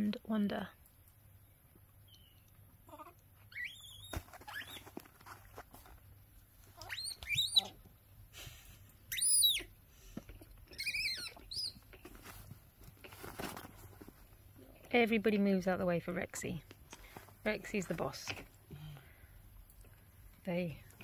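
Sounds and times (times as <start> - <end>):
baby monkeys squealing: 2.9 - 4.9, 6.8 - 7.8, 9.1 - 9.7, 10.7 - 11.8.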